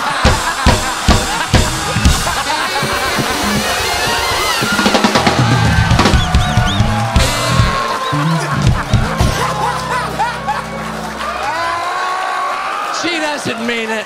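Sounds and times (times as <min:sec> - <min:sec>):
drum kit kick and snare: 0:00.0 - 0:09.6
bass line: 0:00.0 - 0:11.8.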